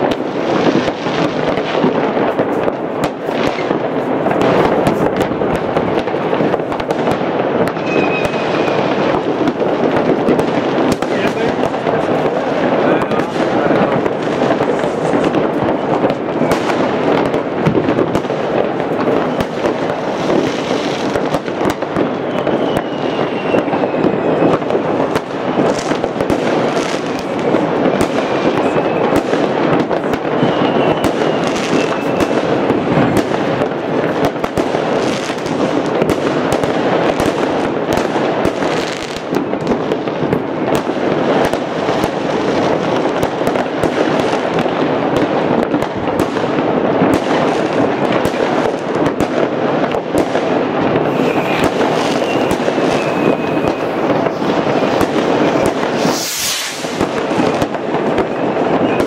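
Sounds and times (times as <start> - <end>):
fireworks crackling and banging: 0.0 - 59.0
faint high whistle: 7.8 - 8.8, 22.2 - 24.6, 30.4 - 32.3, 51.1 - 54.0, 55.5 - 56.9, 58.3 - 59.0.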